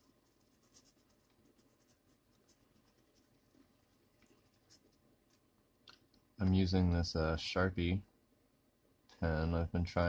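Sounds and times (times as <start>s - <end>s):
pen scratching on paper: 0.0s - 5.4s.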